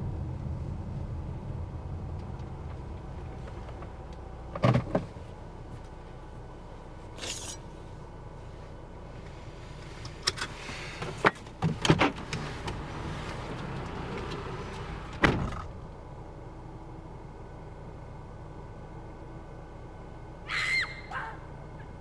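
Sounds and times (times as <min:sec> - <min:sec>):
low steady hum: 0:00.0 - 0:22.0
car door shutting: 0:04.5 - 0:05.2, 0:15.1 - 0:15.8.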